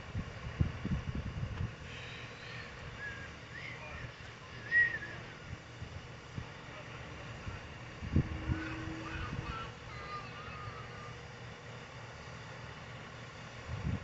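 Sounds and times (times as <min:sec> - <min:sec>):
wind rumbling on microphone: 0:00.0 - 0:01.9, 0:07.4 - 0:09.8, 0:13.6 - 0:14.0.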